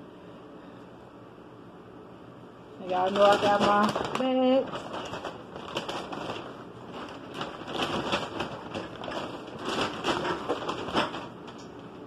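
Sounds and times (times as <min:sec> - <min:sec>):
paper bag rustling: 0:02.8 - 0:11.6.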